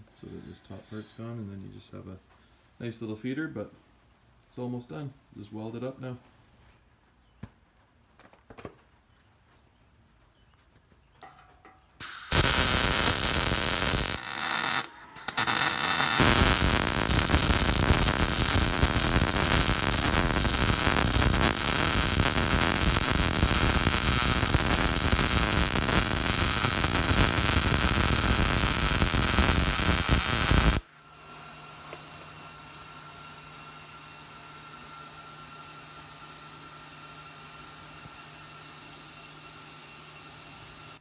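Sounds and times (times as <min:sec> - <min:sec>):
welder arc on steel: 0:12.0 - 0:31.0.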